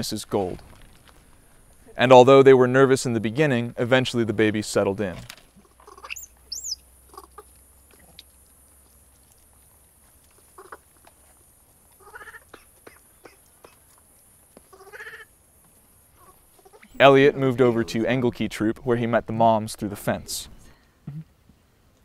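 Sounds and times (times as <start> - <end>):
light clicks and rustles: 0.4 - 1.9.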